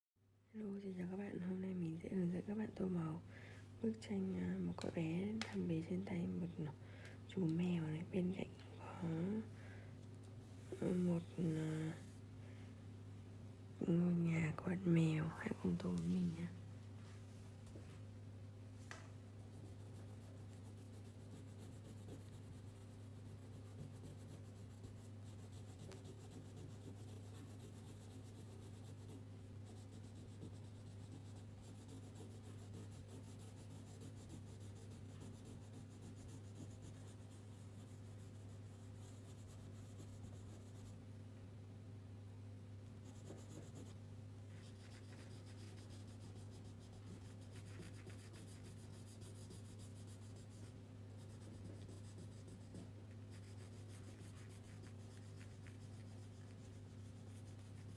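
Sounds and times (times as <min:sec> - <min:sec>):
steady low hum: 0:00.2 - 0:57.9
crayon scratching on paper: 0:19.4 - 0:40.9, 0:43.0 - 0:44.0, 0:44.6 - 0:57.9.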